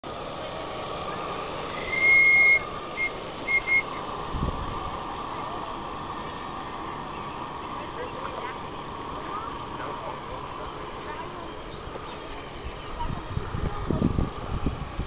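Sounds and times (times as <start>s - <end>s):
steam whistle blowing: 1.6s - 4.1s.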